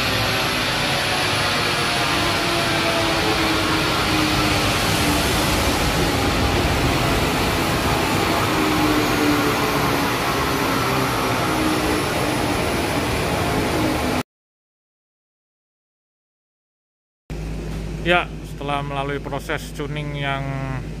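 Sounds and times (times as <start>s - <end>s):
diesel engine running steadily: 0.0s - 11.4s, 17.3s - 21.0s
dynamometer rollers and fans rushing: 0.0s - 14.2s.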